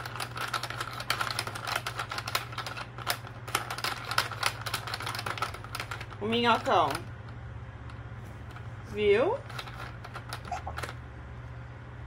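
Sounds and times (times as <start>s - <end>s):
plastic toy clicking and rattling: 0.0s - 7.4s, 9.4s - 11.0s
steady low hum: 0.0s - 12.0s.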